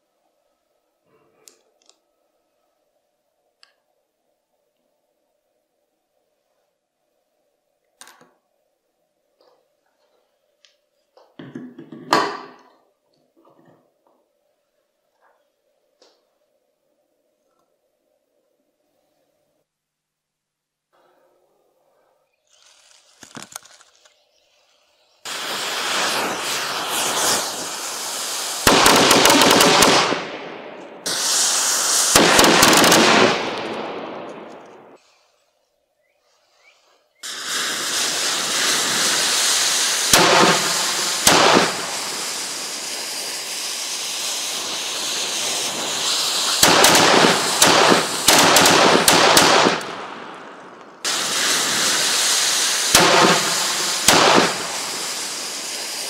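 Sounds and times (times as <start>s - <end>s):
rocket motors hissing: 24.7s - 29.6s, 31.1s - 33.8s, 37.2s - 48.3s, 51.1s - 56.0s
loud sharp cracks: 28.6s - 35.0s, 40.0s - 42.4s, 46.0s - 52.2s, 52.8s - 55.3s.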